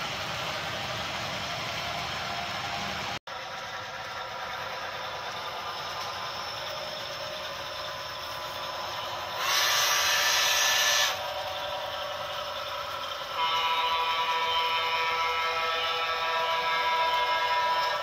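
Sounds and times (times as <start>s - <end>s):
model train motors whirring: 3.4s - 18.0s
loud steam hiss: 9.2s - 11.4s.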